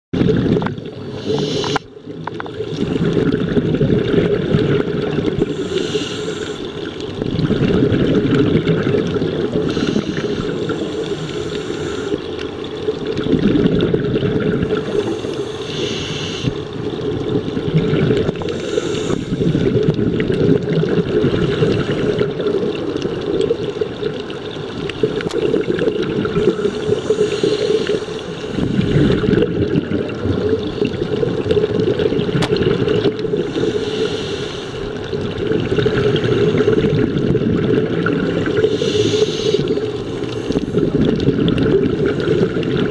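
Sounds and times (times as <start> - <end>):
exhaled air bubbling: 0.2 - 42.9
underwater rumble: 0.2 - 42.9
diver inhaling through regulator: 1.1 - 1.9, 5.4 - 6.9, 9.6 - 12.3, 14.7 - 16.7, 18.4 - 19.8, 26.3 - 29.4, 33.3 - 35.0, 38.5 - 41.0.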